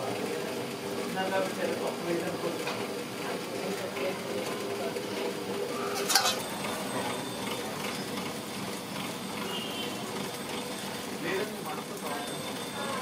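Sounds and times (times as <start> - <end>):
metal utensil clink: 6.0 - 6.5.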